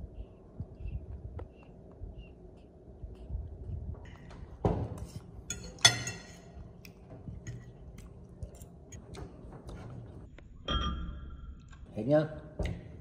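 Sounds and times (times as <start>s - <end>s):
tableware taps and clinks: 5.5s - 6.5s.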